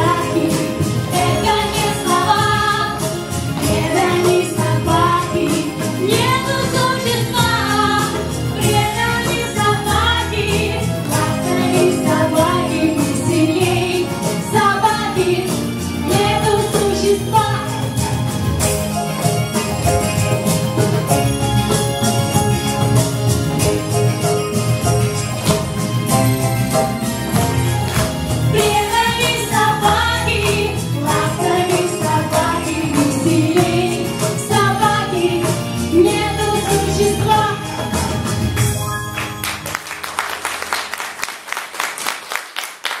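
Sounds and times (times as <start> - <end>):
girls and woman singing: 0.0 - 17.8, 28.5 - 38.1
jingling percussion: 0.0 - 40.7
piano accompaniment: 0.0 - 41.4
audience applause: 39.1 - 43.0.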